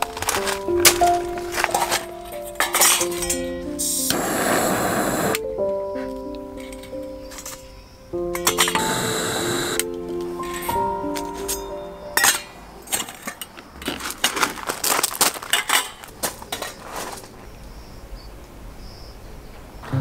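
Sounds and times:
metal cases clinking on gravel: 0.0s - 4.1s, 6.0s - 9.0s, 10.1s - 17.4s.

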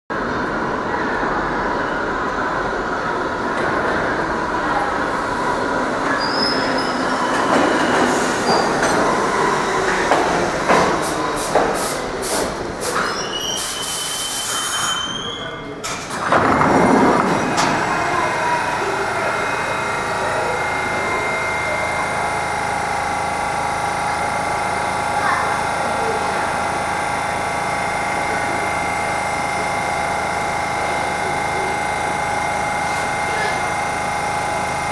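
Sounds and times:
standing train hum: 0.1s - 13.4s, 15.7s - 34.9s
subway train rumbling and clacking: 0.1s - 34.9s
brake squeal: 6.1s - 9.8s, 12.9s - 15.8s
train air hiss: 10.9s - 15.0s.

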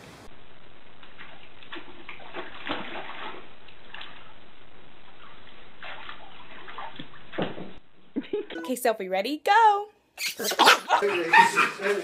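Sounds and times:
water splashing in pool: 0.9s - 7.8s.

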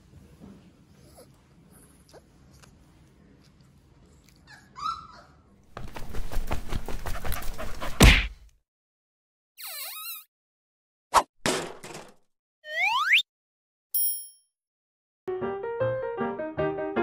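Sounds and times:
puppy whimpering: 4.4s - 5.4s.

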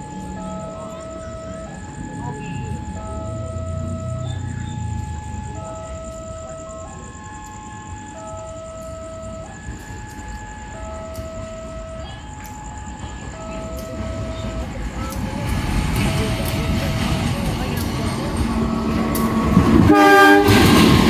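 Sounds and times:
low train rumble: 0.0s - 21.0s
two-tone railway warning alarm: 0.0s - 21.0s
sharp clicks: 12.3s - 13.0s.

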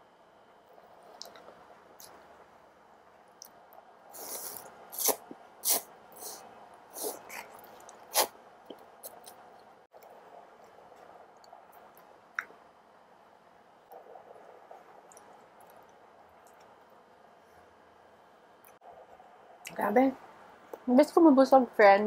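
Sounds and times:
noodles being slurped: 4.2s - 8.3s.

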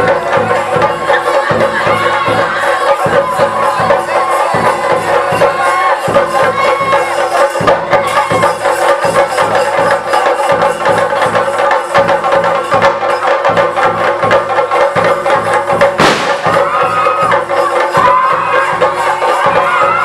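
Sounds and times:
cymbals: 0.0s - 20.0s
drums beaten in fast rhythm: 0.0s - 20.0s
short rushing sound: 16.0s - 16.8s.

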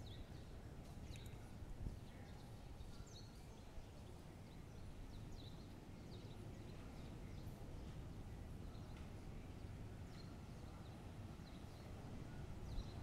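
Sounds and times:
small birds chirping: 0.0s - 9.1s.

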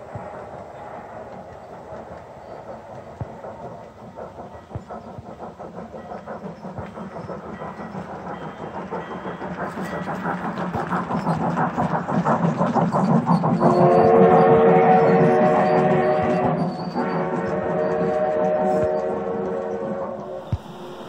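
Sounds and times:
model train clattering: 0.0s - 13.9s.

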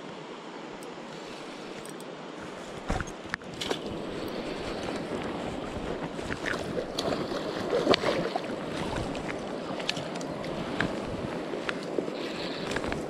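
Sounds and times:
river water splashing around net: 2.6s - 12.8s.

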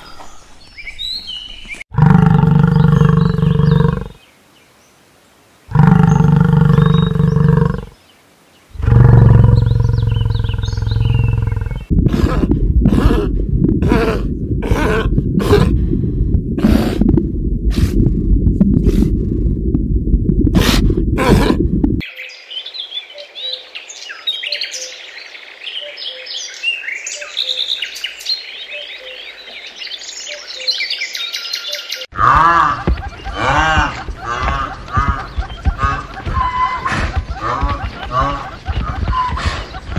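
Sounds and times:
small birds chirping: 0.0s - 5.0s, 5.7s - 11.9s, 22.0s - 39.9s
rough pulsing grunt: 8.8s - 15.9s, 32.1s - 39.9s
loud low noise: 8.8s - 22.0s
bison bellowing: 32.1s - 38.6s.

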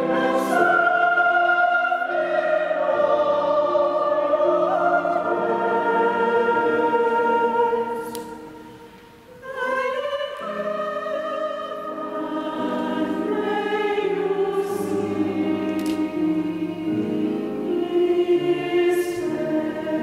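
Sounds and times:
mixed choir singing: 0.0s - 20.0s.

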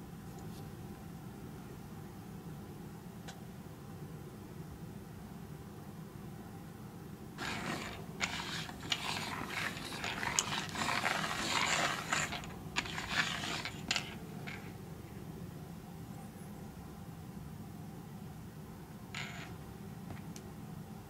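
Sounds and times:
caps scraping across tabletop: 7.4s - 14.8s, 19.2s - 19.6s.

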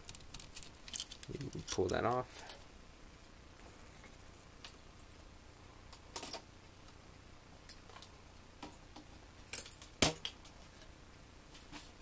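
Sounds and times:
small electronic parts clicking: 0.0s - 2.6s.

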